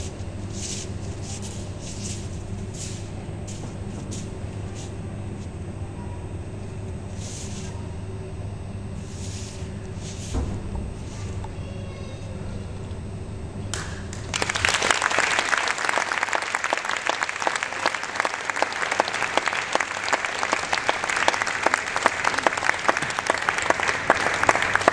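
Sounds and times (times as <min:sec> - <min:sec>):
low steady hum: 0:00.0 - 0:24.9
audience applauding: 0:13.7 - 0:24.9.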